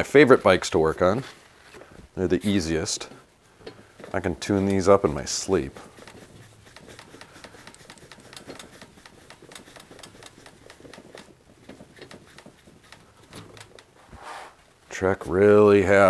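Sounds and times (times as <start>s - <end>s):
bicycle wheel ticking: 3.6s - 14.0s.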